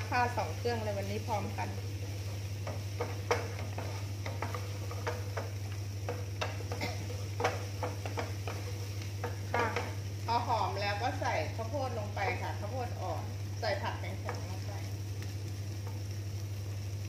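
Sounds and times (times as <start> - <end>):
food sizzling in oil: 0.0 - 17.0
wooden spatula scraping pan: 1.0 - 10.0.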